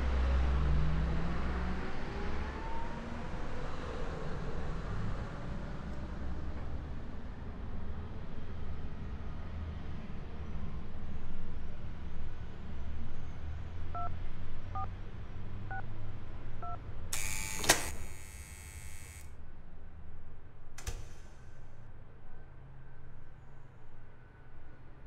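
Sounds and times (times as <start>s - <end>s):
touch-tone keypad beeps: 16.6s - 18.3s
sharp click: 17.2s - 19.3s, 20.8s - 21.4s.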